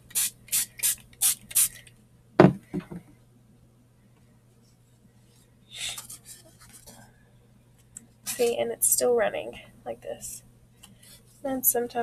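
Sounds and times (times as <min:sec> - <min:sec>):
spray bottle hissing: 0:00.1 - 0:01.8
knock and light taps: 0:02.4 - 0:03.1.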